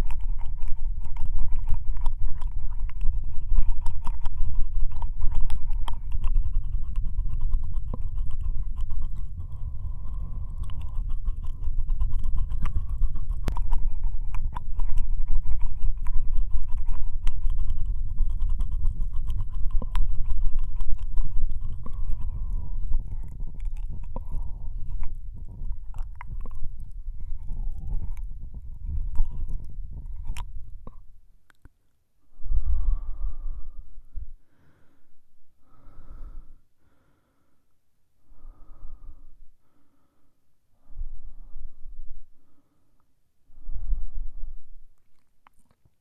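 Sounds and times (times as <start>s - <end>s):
steady low rumble: 0.0s - 31.5s, 32.2s - 36.9s, 37.6s - 45.2s
wet mouth clicks and smacks: 0.0s - 31.8s, 45.0s - 46.0s.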